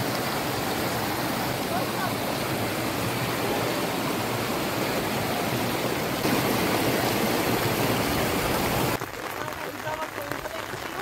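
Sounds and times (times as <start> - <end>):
running water rushing: 0.0 - 11.0.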